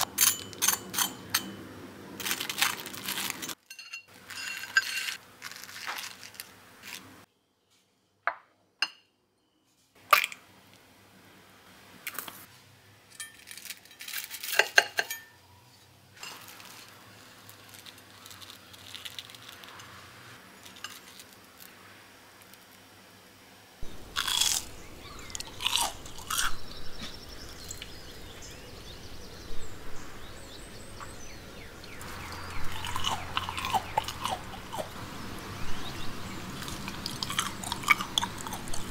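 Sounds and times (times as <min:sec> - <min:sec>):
crunching fried food: 0:02.2 - 0:03.6, 0:04.2 - 0:07.1, 0:13.4 - 0:14.7, 0:16.2 - 0:22.9, 0:23.8 - 0:28.2, 0:32.0 - 0:35.0, 0:35.9 - 0:38.9.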